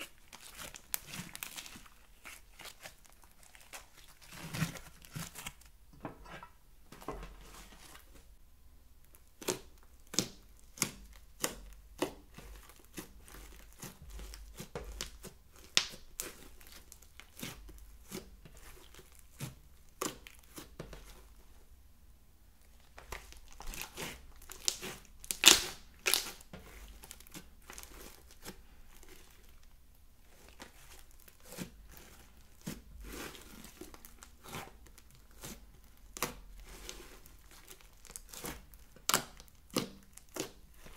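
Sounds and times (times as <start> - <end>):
slime popping and crackling: 0.0 - 5.6, 9.2 - 17.5, 23.0 - 28.5, 36.0 - 40.9.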